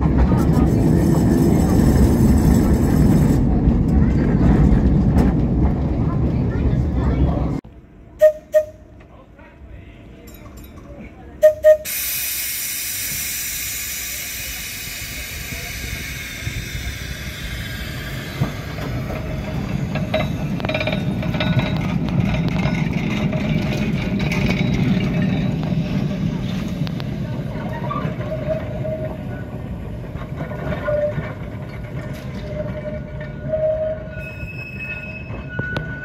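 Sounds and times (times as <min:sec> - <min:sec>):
tram wheels rumbling on rails: 0:00.0 - 0:36.0
loud hiss of air: 0:11.8 - 0:18.7.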